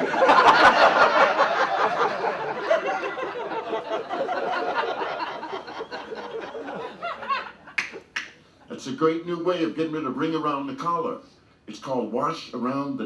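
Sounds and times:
audience laughing: 0:00.0 - 0:08.0.

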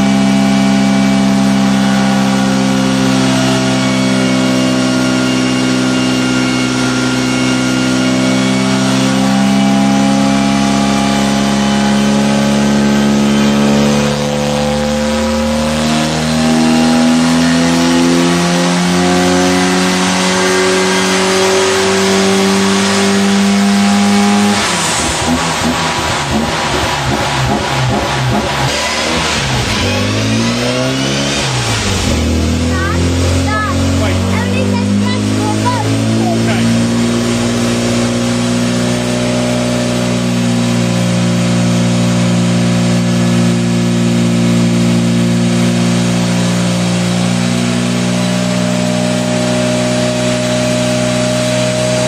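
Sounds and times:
car engine revving under load: 0:00.0 - 0:52.0.

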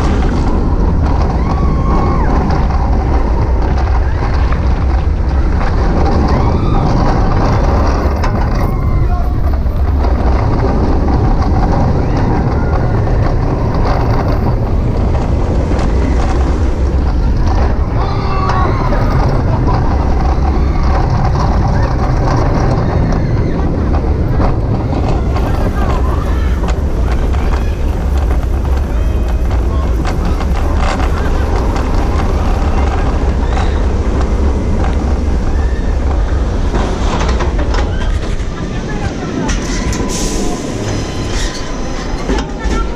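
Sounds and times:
roller coaster train rumble: 0:00.0 - 0:42.9
wind buffeting microphone: 0:00.0 - 0:42.9.

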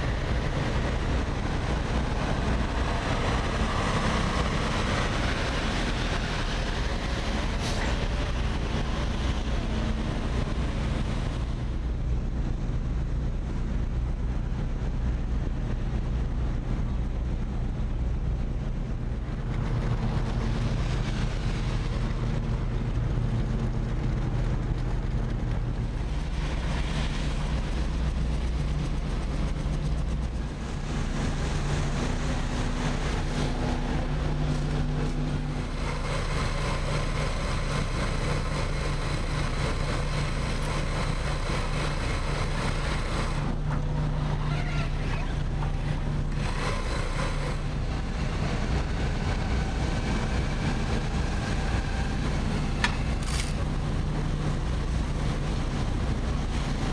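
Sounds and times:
diesel machinery droning: 0:00.0 - 0:56.9.

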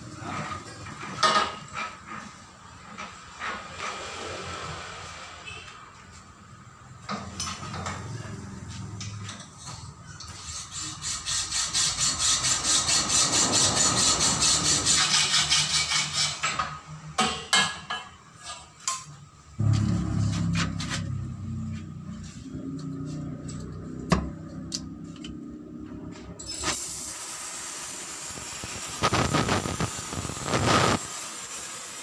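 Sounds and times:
metal clanks and knocks: 0:16.4 - 0:21.6
welding torch gas hiss: 0:26.6 - 0:32.0.

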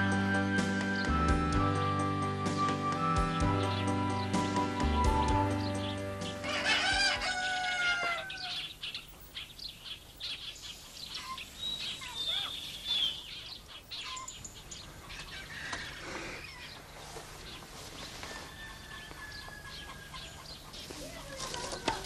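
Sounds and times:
rooster crowing: 0:06.4 - 0:08.8, 0:15.2 - 0:16.8, 0:18.2 - 0:20.5.

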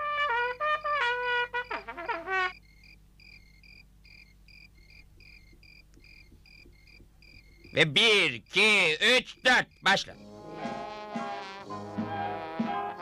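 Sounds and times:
faint crickets chirping: 0:00.0 - 0:11.3
trumpet run with slides: 0:10.5 - 0:13.0.

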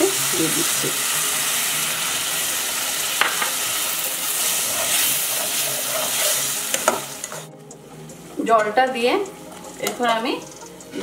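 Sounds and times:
masala sizzling in a pan: 0:00.0 - 0:11.0
spatula scraping a pan: 0:03.4 - 0:07.5.

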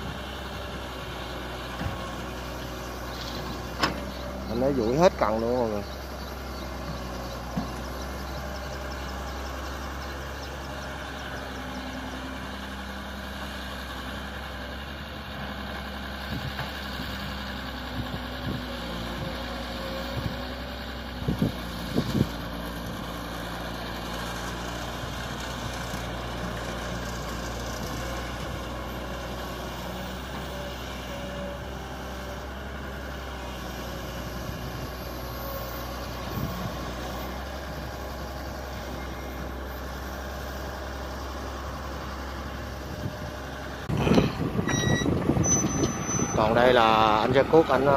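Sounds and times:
excavator diesel engine running: 0:00.0 - 0:47.9.

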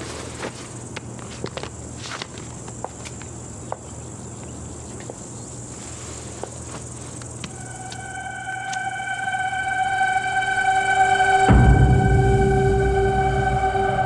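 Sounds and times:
crickets chirping: 0:00.0 - 0:14.0
soft sustained music tones: 0:07.4 - 0:14.0.

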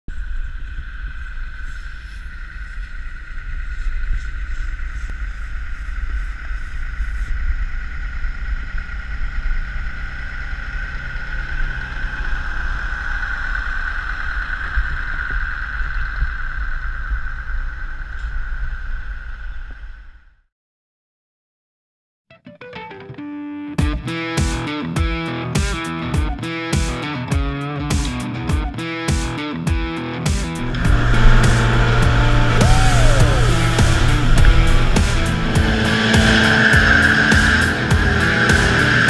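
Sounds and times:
heavy machinery whine and rumble: 0:00.1 - 0:19.8, 0:30.5 - 0:39.0.

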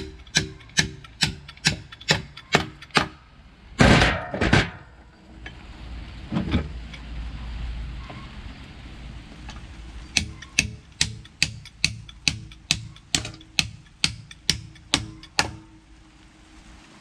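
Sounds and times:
wood clattering: 0:03.8 - 0:05.6.

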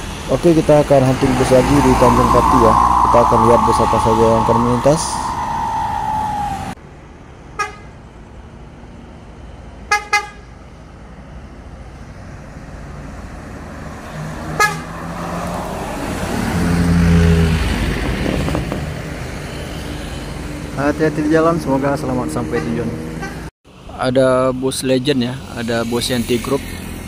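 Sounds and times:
bus diesel engine passing: 0:00.0 - 0:18.4.

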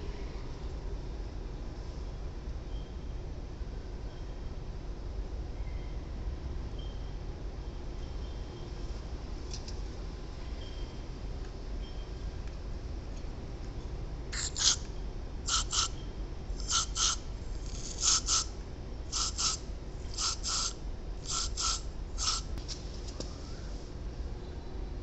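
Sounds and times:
aerosol spray hissing bursts: 0:14.4 - 0:14.8, 0:15.5 - 0:15.9, 0:16.6 - 0:18.5, 0:19.1 - 0:22.5.

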